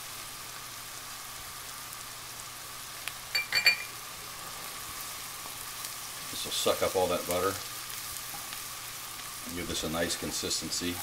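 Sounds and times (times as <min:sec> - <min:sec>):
vegetables sizzling in butter: 0:00.0 - 0:11.0
metallic clinks: 0:03.3 - 0:03.9.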